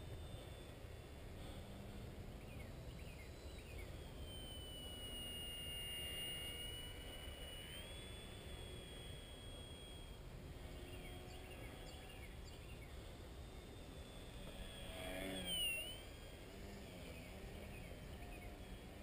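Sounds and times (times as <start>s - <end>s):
model plane propeller whining: 0.0s - 19.0s.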